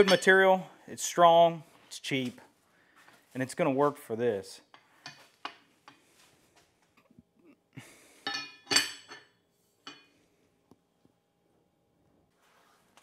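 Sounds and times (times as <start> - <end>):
metal tool clinking on anvil: 0.0 - 0.5, 8.2 - 10.1.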